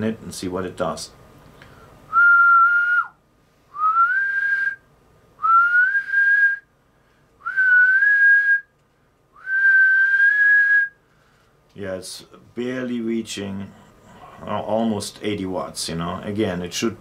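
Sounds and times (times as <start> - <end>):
man whistling: 2.1 - 6.7, 7.4 - 8.7, 9.4 - 11.0.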